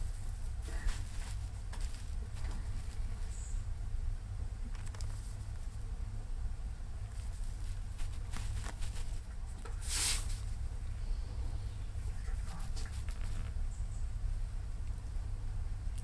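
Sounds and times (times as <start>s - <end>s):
squirrel gnawing a nut: 0.0s - 3.6s, 4.6s - 5.8s, 7.0s - 10.6s, 12.0s - 13.8s
steady low rumble: 0.0s - 16.0s
brief loud rustle: 9.8s - 10.5s.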